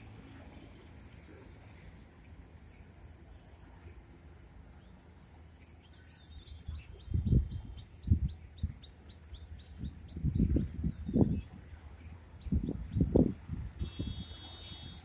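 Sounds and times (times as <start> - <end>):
small bird chirping: 4.3 - 11.5.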